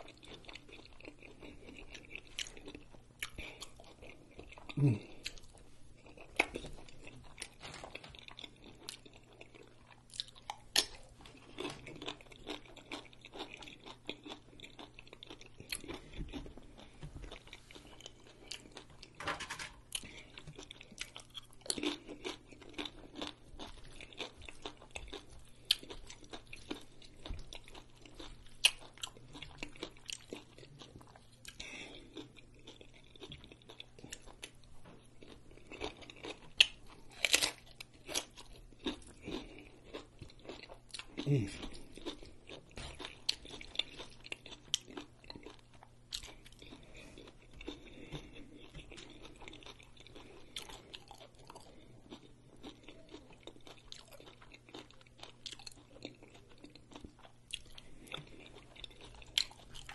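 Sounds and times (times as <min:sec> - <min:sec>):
wet chewing and lip smacking: 0:00.0 - 0:19.2, 0:19.8 - 0:59.9
chips crunching: 0:35.2 - 0:59.9.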